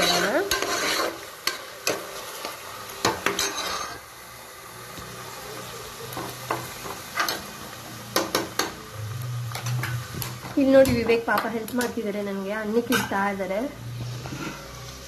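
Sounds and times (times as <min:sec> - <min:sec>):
ladle stirring and scraping pot: 0:00.0 - 0:04.0
light sizzle: 0:00.0 - 0:15.0.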